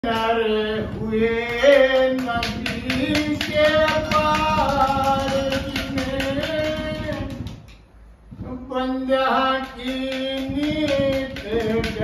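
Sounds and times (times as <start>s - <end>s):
sharp rhythmic taps: 1.3s - 7.9s, 9.3s - 12.0s
man singing long held notes: 8.4s - 12.0s.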